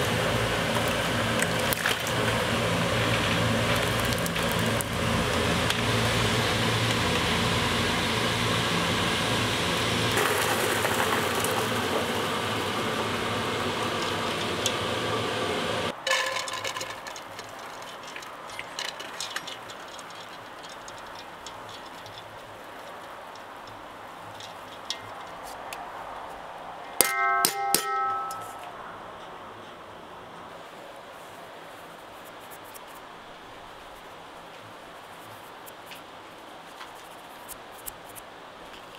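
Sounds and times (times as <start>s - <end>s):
cooking hiss from stove: 0.0s - 16.0s
metal cookware clanging: 16.0s - 17.1s, 27.0s - 28.7s.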